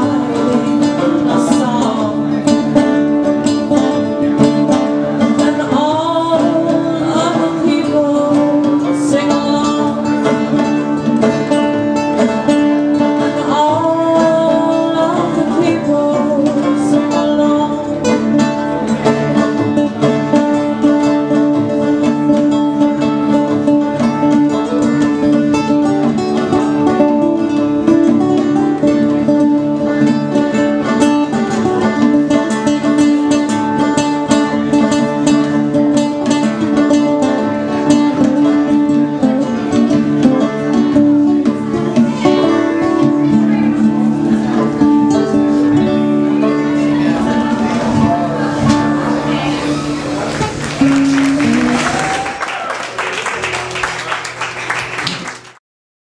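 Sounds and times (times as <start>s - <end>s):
person singing: 0.0s - 11.6s, 12.9s - 22.3s, 41.3s - 52.7s
banjo: 0.0s - 52.2s
acoustic guitar: 0.0s - 55.6s.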